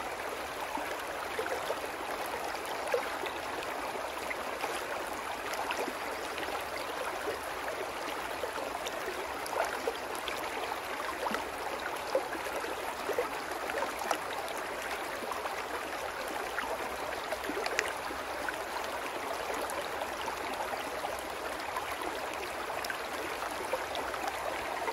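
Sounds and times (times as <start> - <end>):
brook babbling over rocks: 0.0 - 24.9
water splashes: 4.1 - 6.3.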